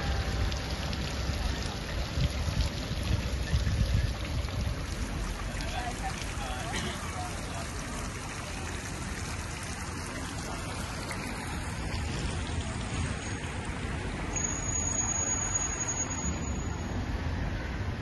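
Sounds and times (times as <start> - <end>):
fountain water splashing: 0.0 - 18.0
street ambience: 0.0 - 18.0
thin high whistle tone: 14.3 - 16.8.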